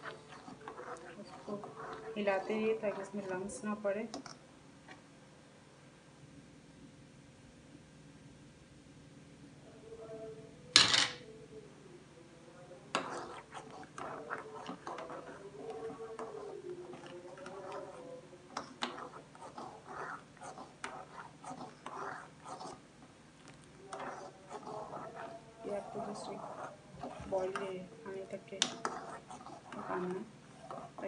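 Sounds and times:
spoon scraping metal pan: 0:00.0 - 0:03.6, 0:12.9 - 0:22.8, 0:23.9 - 0:31.0.

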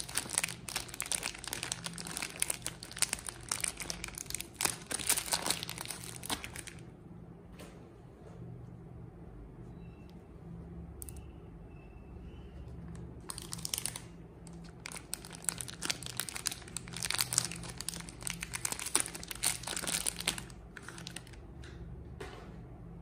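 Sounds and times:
packaging crinkling and tearing: 0:00.0 - 0:06.8, 0:12.9 - 0:21.4.

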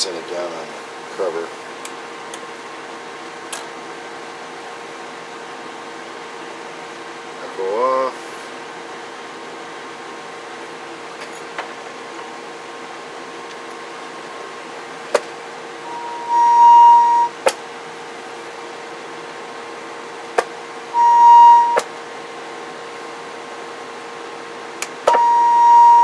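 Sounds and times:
faint equipment hum: 0:00.0 - 0:26.0
steady high test tone: 0:15.8 - 0:17.4, 0:20.9 - 0:21.9, 0:25.1 - 0:26.0.

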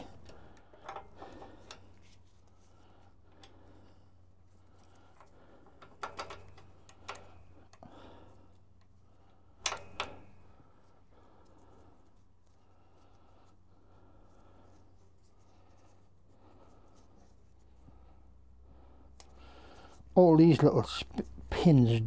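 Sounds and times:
faint metallic clicks and knocks: 0:00.0 - 0:02.3, 0:04.8 - 0:07.8, 0:09.6 - 0:10.4
low steady hum: 0:00.0 - 0:22.0.

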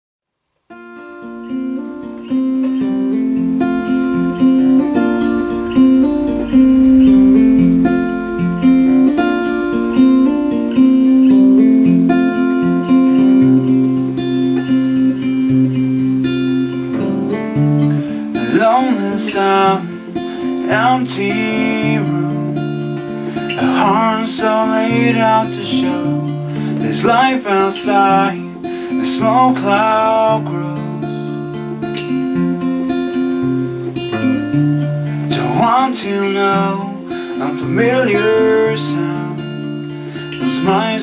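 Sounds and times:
acoustic guitar picking: 0:00.7 - 0:41.0
man singing: 0:18.3 - 0:31.1, 0:35.3 - 0:41.0.

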